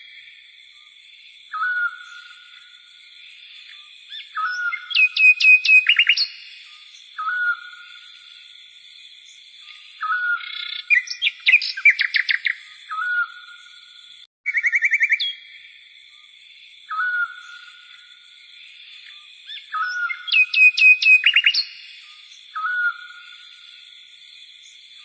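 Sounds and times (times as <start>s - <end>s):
songbird chirping trills: 0.0s - 25.0s
songbird whistled phrase: 1.5s - 2.3s, 4.1s - 6.5s, 7.2s - 7.8s, 10.0s - 13.5s, 14.5s - 15.4s, 16.9s - 17.6s, 19.5s - 21.8s, 22.5s - 23.2s.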